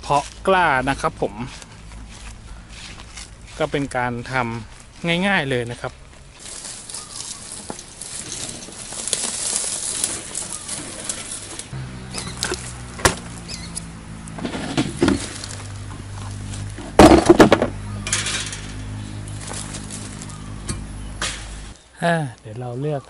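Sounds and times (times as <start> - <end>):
footsteps in dry leaves: 0.0 - 17.0, 17.7 - 21.8
hand cart rustling through leaves: 0.0 - 21.9
plastic basin clattering: 14.4 - 15.4, 16.8 - 18.6
plastic stool knocking down: 16.8 - 17.8.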